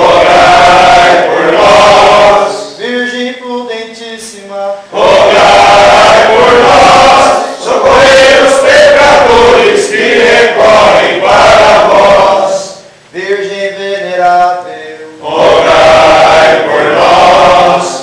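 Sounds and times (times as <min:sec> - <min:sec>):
men chanting in unison: 0:00.0 - 0:03.2, 0:04.9 - 0:12.8, 0:14.2 - 0:18.0
man singing: 0:02.4 - 0:04.9, 0:12.7 - 0:15.3.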